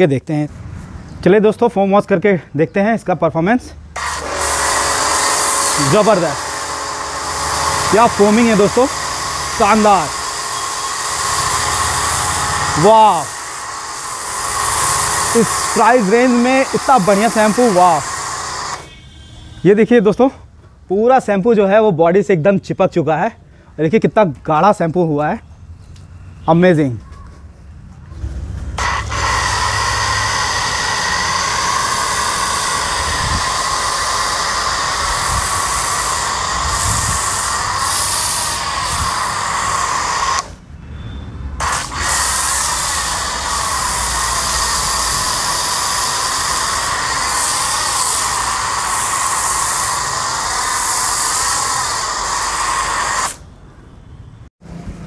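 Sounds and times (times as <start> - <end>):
pump motor running: 4.0 - 18.9, 28.8 - 40.5, 41.6 - 53.4
pressure washer spray hiss: 4.0 - 19.4, 28.8 - 40.6, 41.6 - 53.4.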